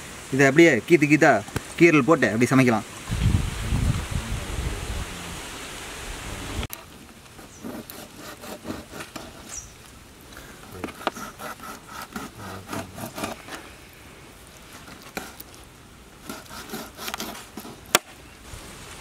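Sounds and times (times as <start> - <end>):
knife sawing through fish: 7.6 - 9.6, 10.8 - 13.6, 14.8 - 15.5, 16.2 - 17.9.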